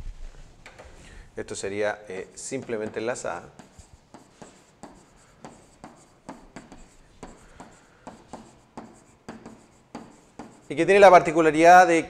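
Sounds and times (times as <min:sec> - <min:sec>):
stylus tapping and rubbing on board: 0:02.4 - 0:11.4.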